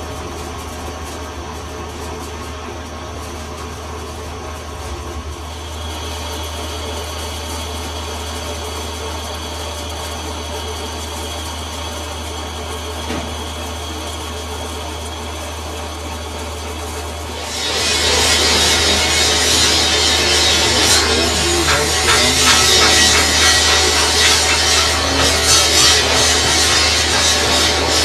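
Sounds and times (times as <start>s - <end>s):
metal lathe humming: 17.4s - 28.0s
high whine: 17.5s - 28.0s.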